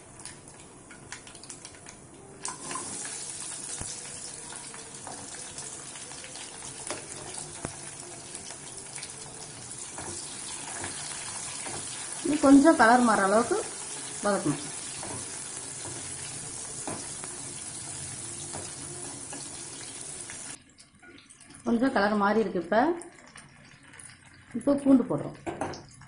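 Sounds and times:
shallots sizzling in hot oil: 2.4 - 20.6.

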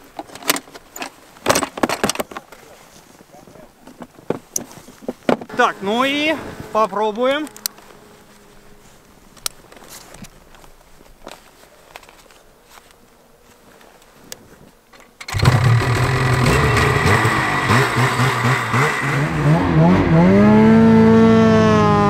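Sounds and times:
snowmobile engine starting and revving: 5.5 - 9.0, 15.1 - 22.0.

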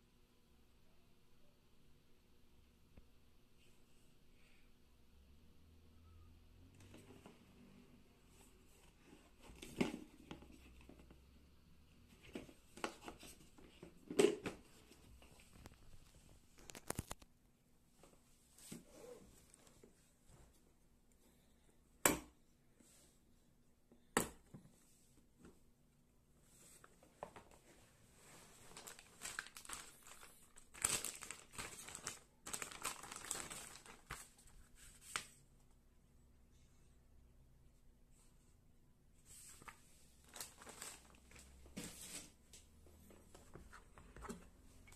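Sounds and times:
plastic bag crinkling: 28.7 - 34.6, 40.2 - 41.6.

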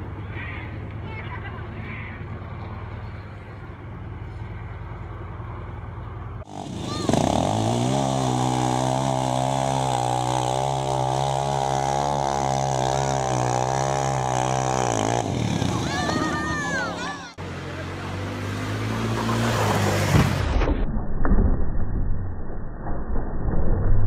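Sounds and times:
low vehicle rumble: 0.0 - 24.0
atv engine at high revs: 6.4 - 20.4.

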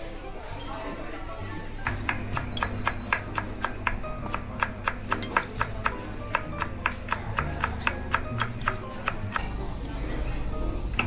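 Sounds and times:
background music: 1.4 - 11.0.

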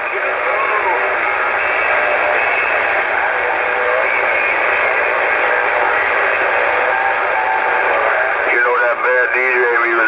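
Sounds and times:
radio static hiss: 0.0 - 7.1, 7.8 - 10.0.

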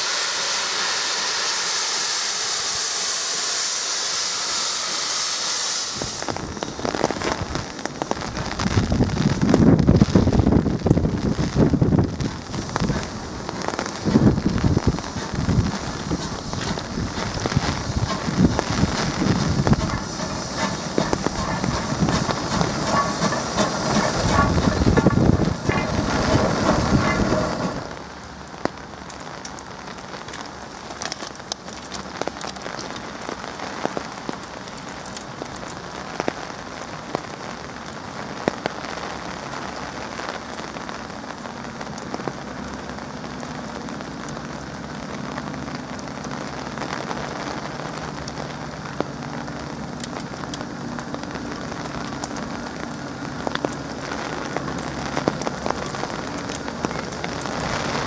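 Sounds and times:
steam locomotive running hum: 0.0 - 8.0, 11.7 - 28.3
passing train rumbling: 0.0 - 37.1, 41.1 - 58.0
rain falling: 0.0 - 58.0.

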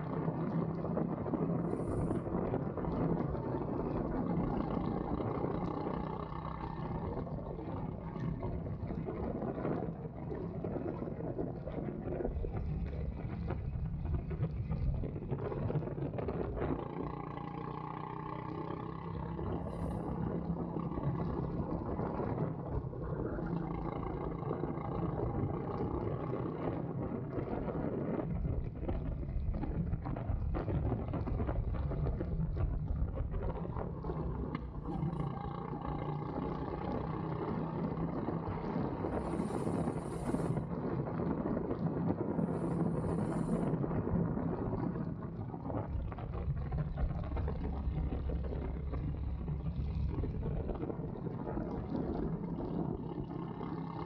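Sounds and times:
wind noise on microphone: 0.0 - 17.5, 18.7 - 54.0
go-kart engine running: 0.0 - 54.0.

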